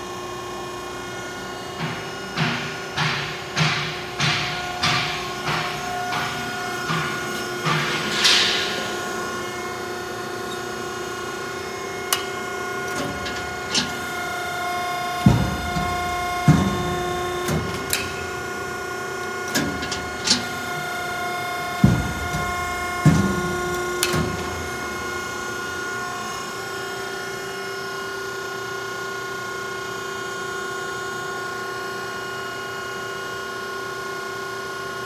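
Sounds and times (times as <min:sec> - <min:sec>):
hydraulic shear humming: 0:00.1 - 0:27.5
sharp metal clanks: 0:02.4 - 0:09.6, 0:15.2 - 0:18.6.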